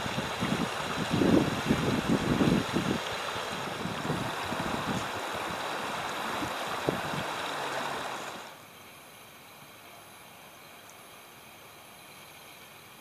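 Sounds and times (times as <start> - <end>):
wind buffets on microphone: 0.0 - 8.4
river rushing over rocks: 0.0 - 8.6.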